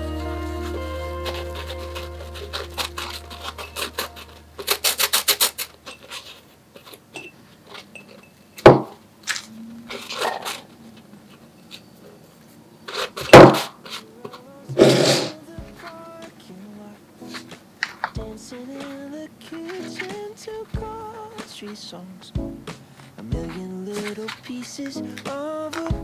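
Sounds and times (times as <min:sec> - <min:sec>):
wooden stick scraping tea leaves: 0:00.4 - 0:07.0, 0:18.7 - 0:20.5, 0:23.0 - 0:26.0.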